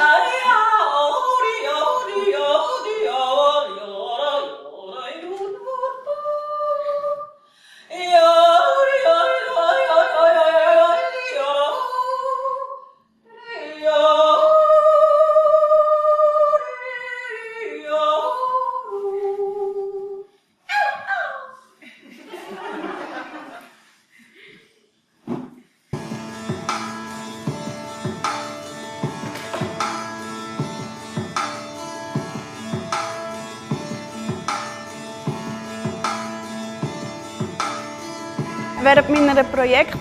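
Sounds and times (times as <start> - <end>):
woman singing wordlessly: 0.0 - 7.3, 7.9 - 20.2, 38.4 - 40.0.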